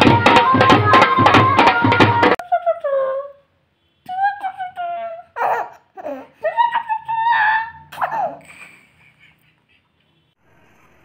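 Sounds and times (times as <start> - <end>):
baby laughing and squealing: 5.2 - 9.9.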